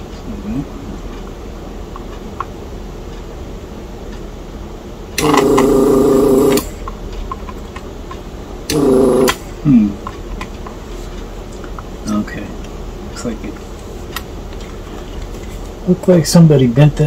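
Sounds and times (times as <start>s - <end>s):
desoldering pump buzzing: 5.0s - 10.9s.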